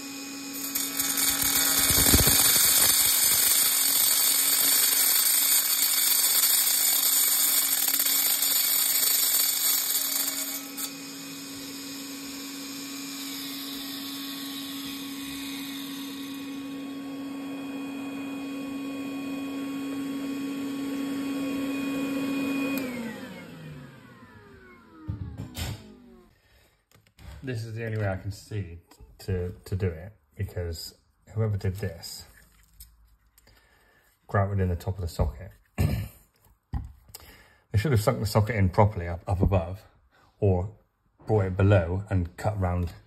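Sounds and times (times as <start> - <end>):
angle grinder cutting tile: 0.0 - 26.2
grinder spinning freely with whine: 0.0 - 26.3.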